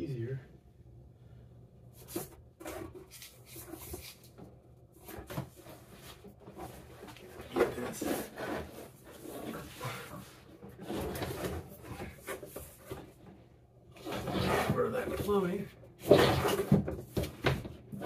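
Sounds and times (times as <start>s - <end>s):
cable scraping through joists: 14.0s - 15.2s.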